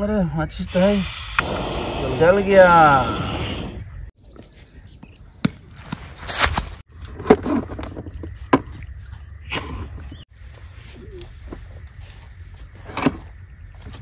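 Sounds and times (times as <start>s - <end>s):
outdoor background noise: 0.0s - 14.0s
rustling burst: 0.8s - 3.9s.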